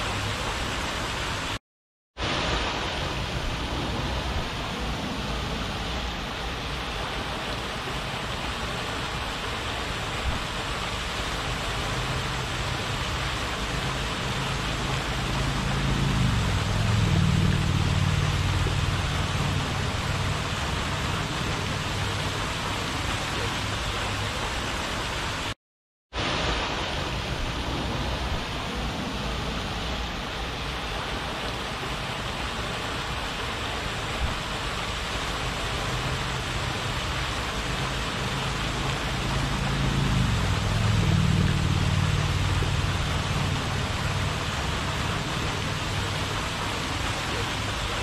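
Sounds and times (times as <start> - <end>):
fountain spray splashing: 0.0 - 1.6, 2.2 - 25.6, 26.2 - 48.0
low hum: 13.6 - 22.3, 38.4 - 45.3.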